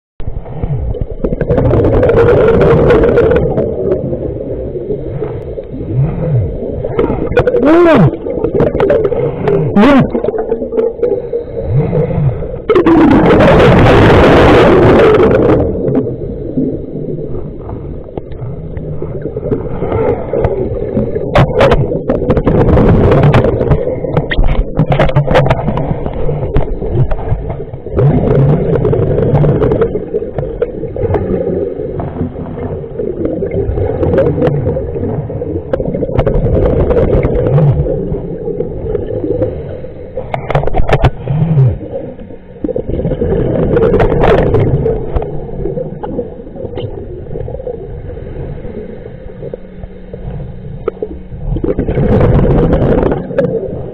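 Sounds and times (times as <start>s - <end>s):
muffled water hum: 0.2s - 53.9s
underwater bubbles gurgling: 0.2s - 53.9s.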